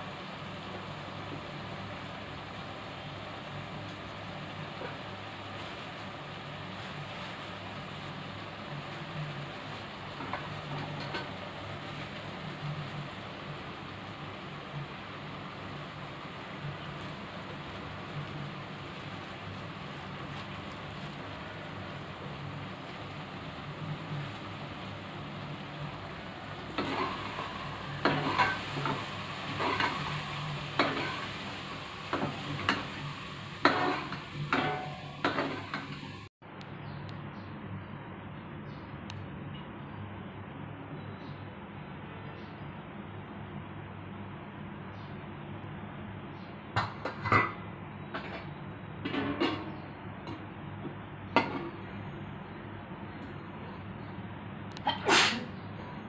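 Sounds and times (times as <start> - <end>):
meat sizzling in oil: 0.0 - 36.3
metal pot and utensils clinking: 10.2 - 11.4, 26.7 - 31.3, 33.6 - 36.2, 46.8 - 47.6, 48.2 - 50.4
metal ladle scraping pot: 26.7 - 30.1.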